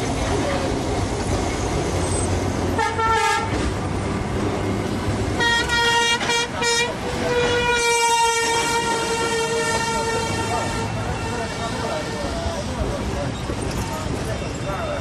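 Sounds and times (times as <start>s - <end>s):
horn blasts: 2.8s - 3.6s, 5.4s - 12.3s.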